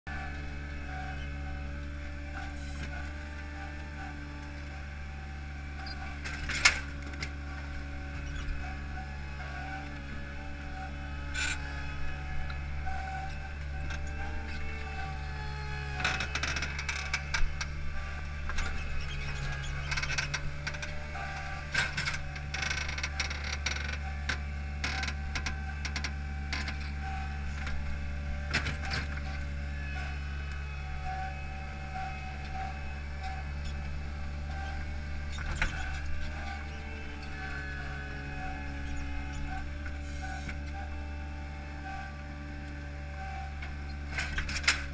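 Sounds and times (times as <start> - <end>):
machine engine running: 0.1 - 44.9.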